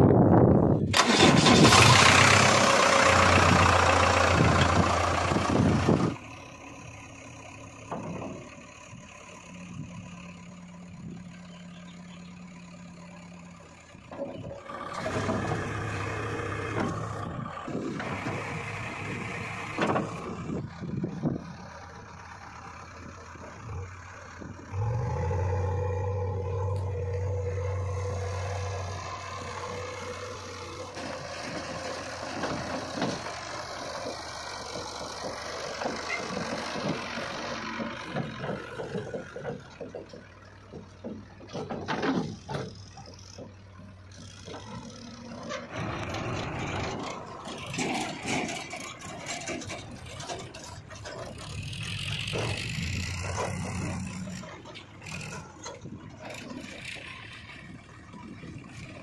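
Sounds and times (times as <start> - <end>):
backhoe diesel engine running: 0.0 - 59.0
tractor diesel engine: 0.0 - 59.0
knocks and clanks: 7.8 - 8.6, 30.8 - 58.8.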